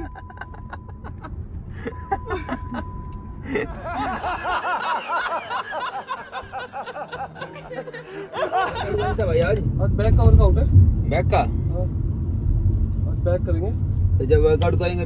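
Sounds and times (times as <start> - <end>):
man cackling with laughter: 0.0 - 2.8, 3.5 - 9.2
car cabin road rumble: 0.0 - 15.0.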